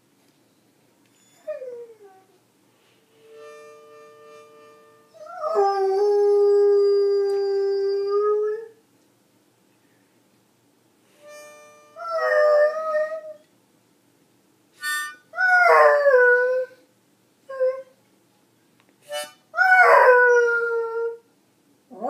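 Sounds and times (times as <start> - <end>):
harmonica note: 2.8 - 6.4, 11.1 - 13.3, 14.8 - 15.8, 19.0 - 19.5.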